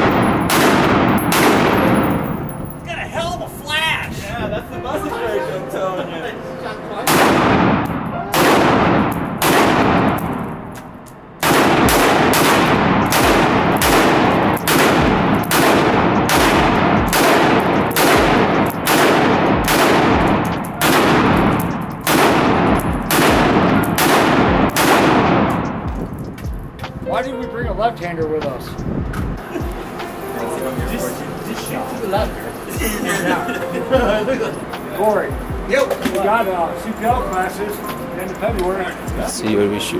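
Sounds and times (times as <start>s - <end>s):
rifle shots echoing indoors: 0.0s - 2.7s, 7.1s - 10.7s, 11.4s - 25.9s.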